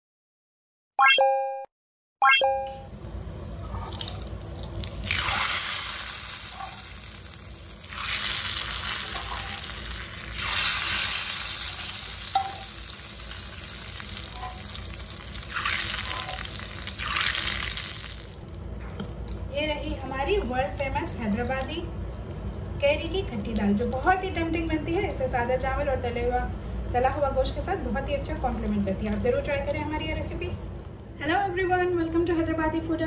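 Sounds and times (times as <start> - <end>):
hot oil sizzling: 4.4 - 18.4.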